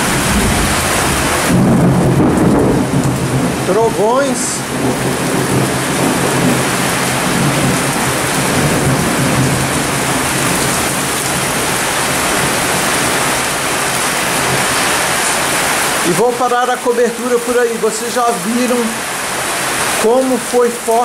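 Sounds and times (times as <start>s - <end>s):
low thunder rumbling: 0.0s - 16.2s
heavy rain pouring: 0.0s - 21.0s.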